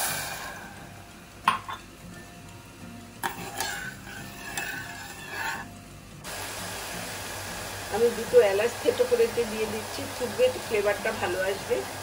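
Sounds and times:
metal spoon scraping saucepan: 3.2 - 5.7.

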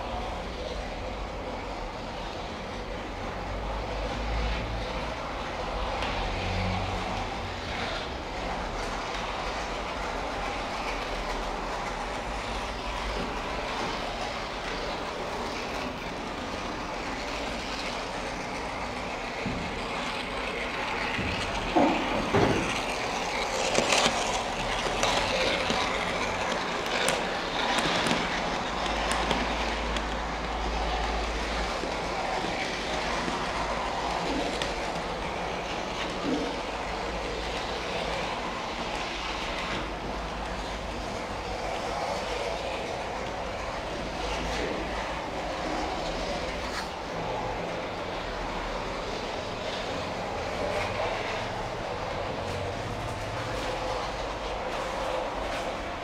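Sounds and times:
model train rolling whir: 0.0 - 56.0
train clicks and clacks: 0.0 - 56.0.

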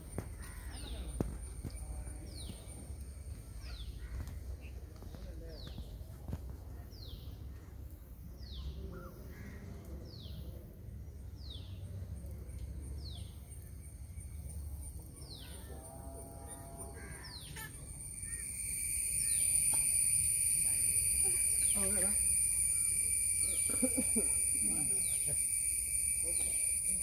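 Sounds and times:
steady high buzz: 16.5 - 27.0
bird whistling call: 17.3 - 26.9.

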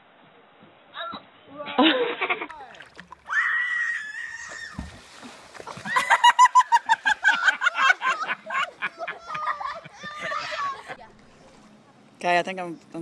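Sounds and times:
high-pitched laughter: 1.6 - 2.5, 5.8 - 11.0
splash into water: 2.5 - 6.4
child screaming: 3.3 - 4.8, 9.3 - 10.8.

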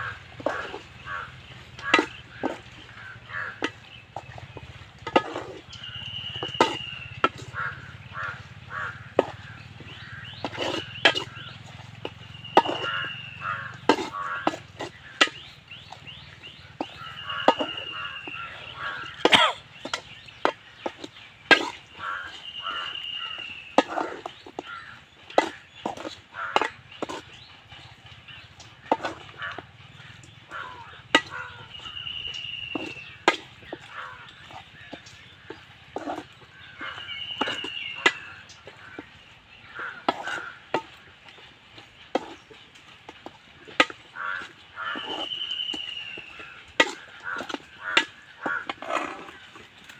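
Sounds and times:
bird calls: 0.0 - 49.9
spoon scraping steel bowl: 1.7 - 5.7, 6.3 - 19.4, 43.7 - 49.9
bird high call: 5.7 - 9.0, 9.9 - 14.4, 15.4 - 20.0, 22.0 - 24.9, 30.5 - 33.2, 36.6 - 38.5, 44.2 - 48.6.

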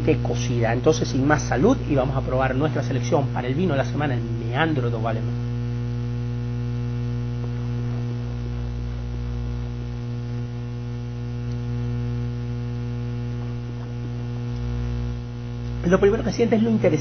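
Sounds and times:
electrical mains hum: 0.0 - 17.0
faint ticks: 10.3 - 15.8.

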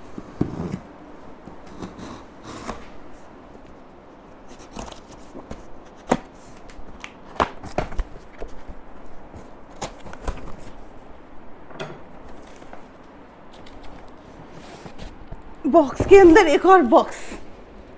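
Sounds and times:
cardboard scraping and rustling: 0.1 - 0.9, 4.4 - 6.7, 13.6 - 16.4.

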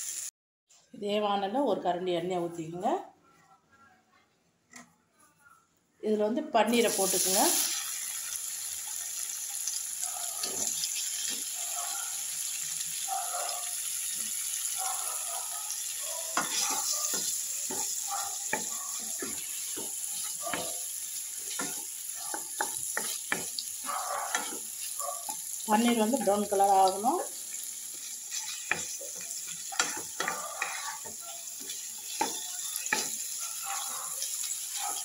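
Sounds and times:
cheese cubes sizzling in oil: 6.8 - 35.0
wooden spatula scraping pan: 28.3 - 33.2.

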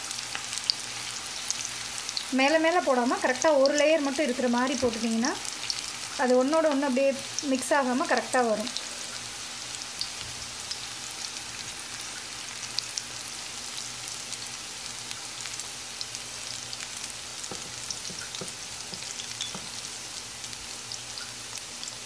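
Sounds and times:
onion fritters deep-frying in oil: 0.0 - 22.0
oil popping and crackling: 15.0 - 22.0.

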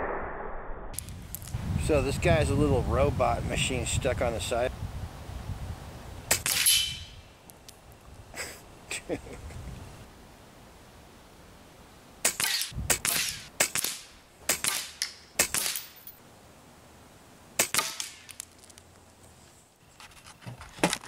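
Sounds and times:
air rifle shots: 6.3 - 7.1, 12.2 - 16.0, 17.6 - 18.3
pellets hitting plastic targets: 17.6 - 18.5.

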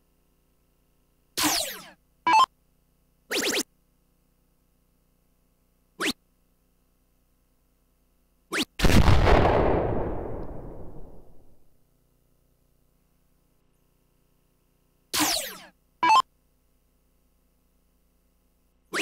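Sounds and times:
electronic blips: 3.3 - 3.7, 15.2 - 16.3
electronic explosion effect: 8.8 - 11.6.

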